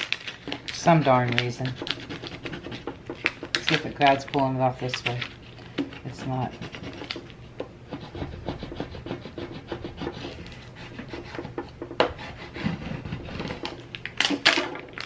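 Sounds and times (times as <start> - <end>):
fingers scratching plastic sheet: 0.0 - 5.3, 5.9 - 7.4, 8.0 - 11.6.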